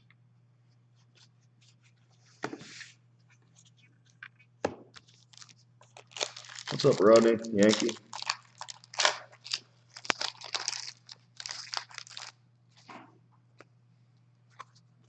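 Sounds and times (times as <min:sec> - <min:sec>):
cards rustling and clicking: 0:03.6 - 0:12.3
foil wrapper tearing and crinkling: 0:05.0 - 0:12.4.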